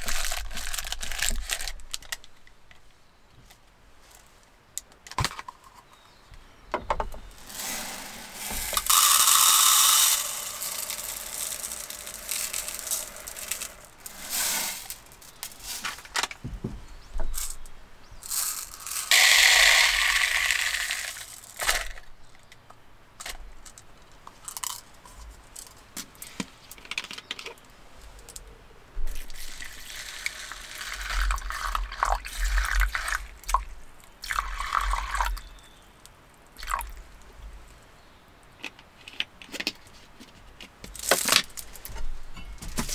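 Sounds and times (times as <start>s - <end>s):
water poured from plastic bottle: 0.0s - 2.1s, 7.5s - 15.0s, 29.1s - 35.4s
plastic bag rustling: 0.0s - 2.3s, 7.5s - 16.3s
dry powder pouring: 7.4s - 15.8s, 18.2s - 22.0s, 29.2s - 33.6s.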